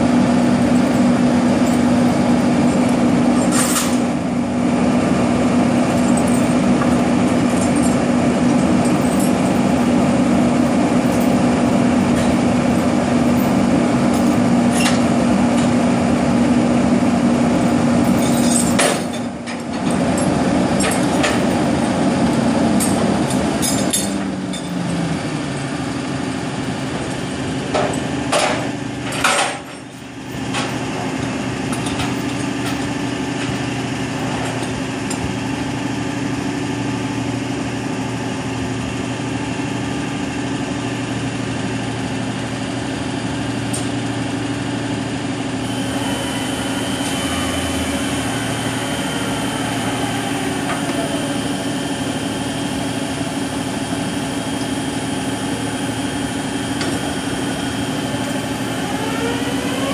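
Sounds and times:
engine idling: 0.0 - 59.9
thin high whine: 45.6 - 59.9.

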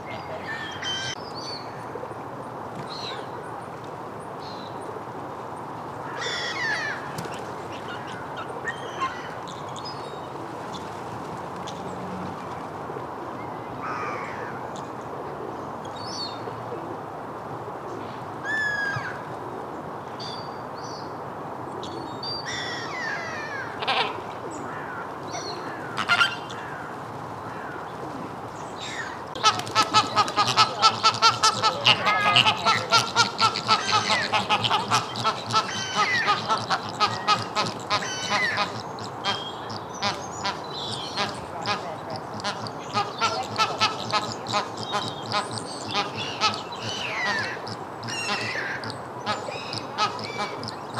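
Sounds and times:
flamingos honking: 25.8 - 26.5, 29.3 - 50.9.

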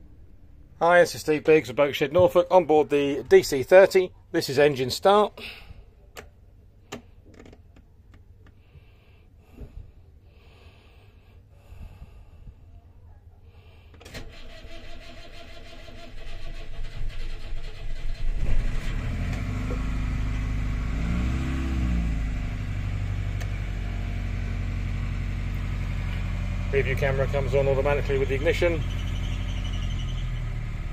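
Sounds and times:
starter motor cranking: 14.0 - 19.8
boat engine idling: 24.2 - 29.6.

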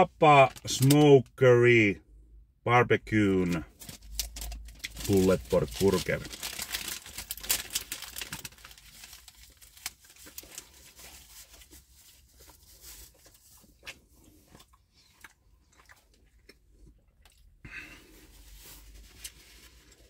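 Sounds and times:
paper wrapper crinkling: 0.3 - 1.0, 3.4 - 14.0, 18.4 - 20.0
burger being chewed: 9.9 - 20.0.

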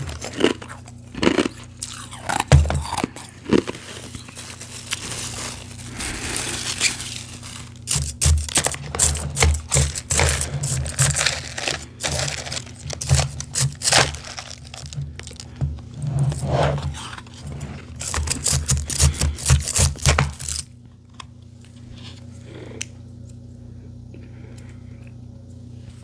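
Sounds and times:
fork scraping through ice: 3.5 - 14.9.

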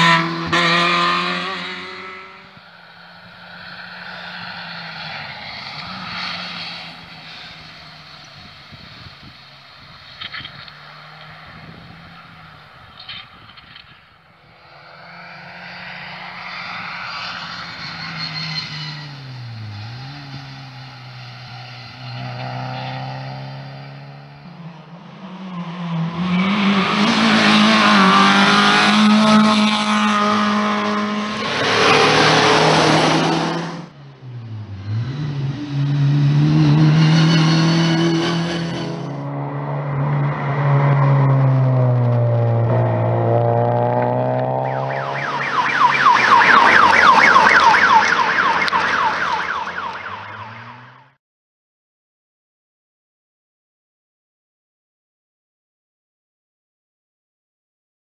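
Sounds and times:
rally car engine passing: 0.0 - 13.0, 14.5 - 51.1
siren yelping: 44.5 - 51.1.

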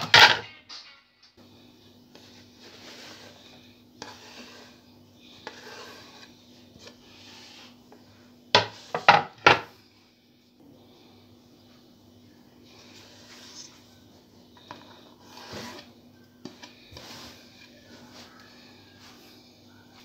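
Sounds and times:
faint steady hum: 0.0 - 20.0
food rustling and scraping in pan: 1.5 - 10.0, 12.6 - 20.0.

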